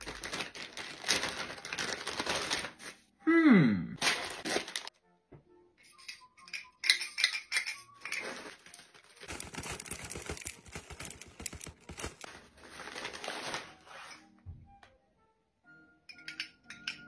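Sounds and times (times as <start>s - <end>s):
seeds rattling into plastic: 8.1s - 13.6s.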